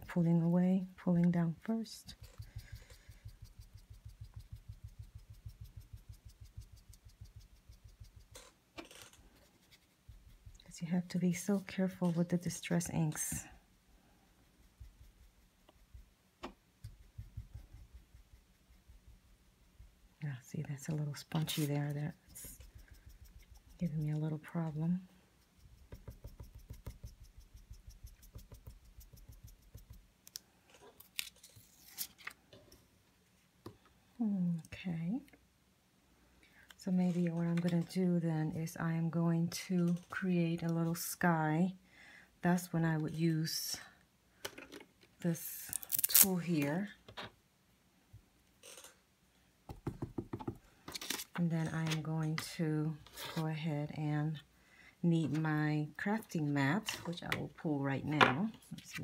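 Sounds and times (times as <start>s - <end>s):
ink tool dabbing on paper: 1.7s - 8.5s, 14.4s - 16.2s, 16.8s - 19.2s, 20.7s - 30.1s.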